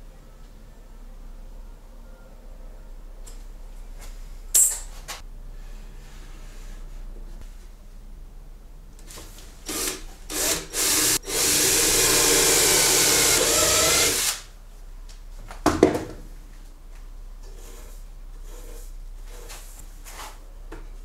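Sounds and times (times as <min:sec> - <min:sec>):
cordless drill boring into wood: 0:09.7 - 0:14.4.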